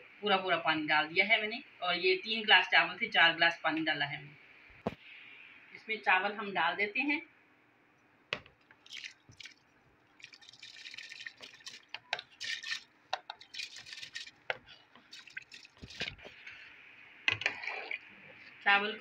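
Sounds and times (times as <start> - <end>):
rice pouring into water: 8.8 - 9.6, 10.2 - 16.3.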